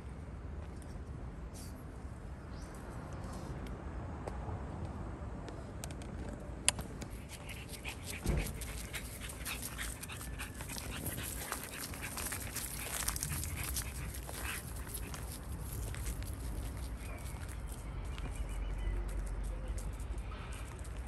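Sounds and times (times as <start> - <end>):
dog panting: 7.1 - 16.8
low thump: 8.2 - 9.0.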